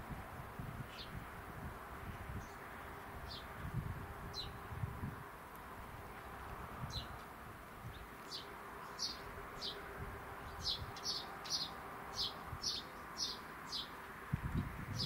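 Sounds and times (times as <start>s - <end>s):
bird chirping: 7.9s - 9.8s, 10.4s - 14.0s.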